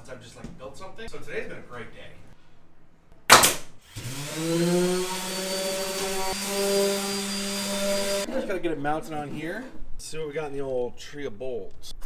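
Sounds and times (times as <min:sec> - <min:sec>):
power tool motor running: 0:03.8 - 0:08.3.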